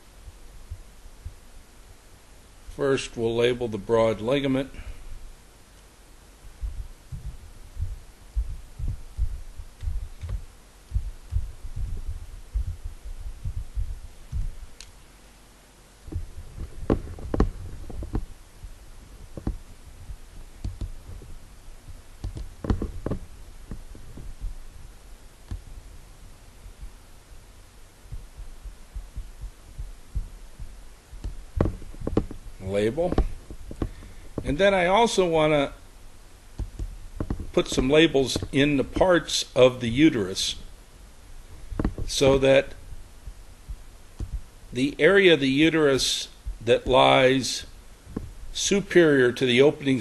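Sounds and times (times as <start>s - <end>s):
keyboard typing thumps: 6.6s - 14.6s, 16.1s - 24.6s, 28.1s - 34.6s, 36.6s - 39.0s, 41.6s - 42.4s, 43.2s - 44.4s.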